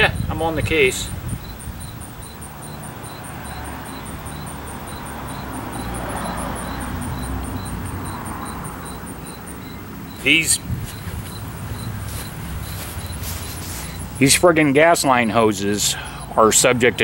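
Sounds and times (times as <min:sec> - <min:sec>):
insects chirping: 0:00.0 - 0:17.0
soft rushing noise: 0:06.6 - 0:15.4.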